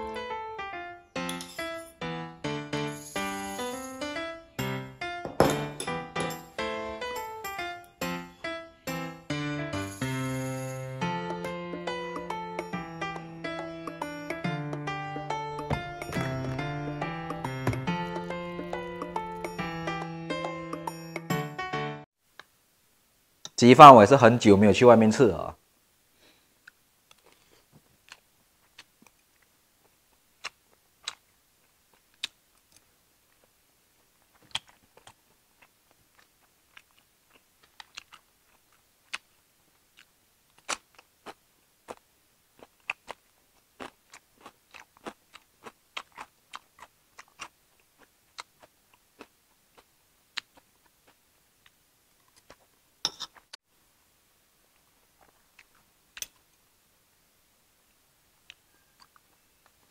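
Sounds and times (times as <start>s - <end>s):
cutlery clinking on plates: 5.3s - 6.5s, 53.0s - 53.4s
chewing: 26.6s - 33.5s, 34.1s - 53.5s, 55.2s - 56.4s, 58.5s - 59.9s
crunching cucumber: 42.6s - 52.6s.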